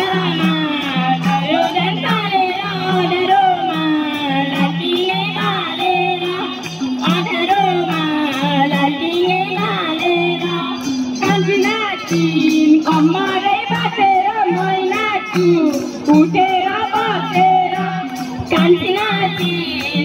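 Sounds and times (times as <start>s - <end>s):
folk song with singing voice: 0.0s - 20.0s.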